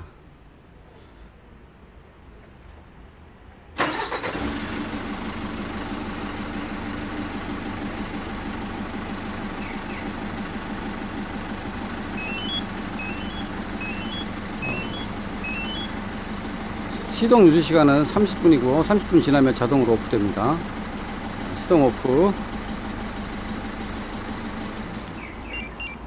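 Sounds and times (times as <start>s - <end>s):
diesel engine starting and idling: 3.7s - 26.0s
rising three-note electronic beep: 12.2s - 15.9s, 25.2s - 26.0s.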